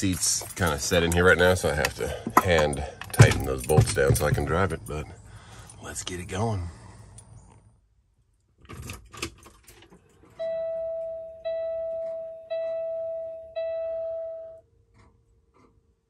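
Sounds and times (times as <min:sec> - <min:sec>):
keys rattling: 0:00.0 - 0:05.8
faint steady tone: 0:10.2 - 0:14.8
dashboard warning chime dings: 0:10.3 - 0:14.6.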